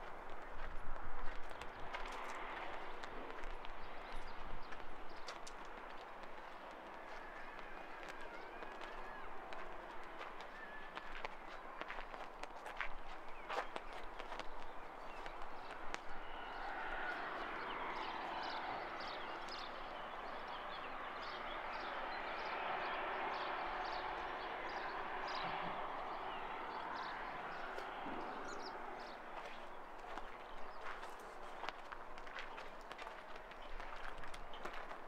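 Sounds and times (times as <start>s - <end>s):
outdoor background wash: 0.0s - 35.0s
footsteps: 27.0s - 35.0s.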